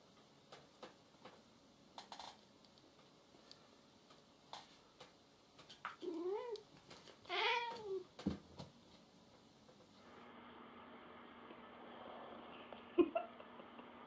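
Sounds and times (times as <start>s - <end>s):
cat meowing: 7.3s - 8.0s.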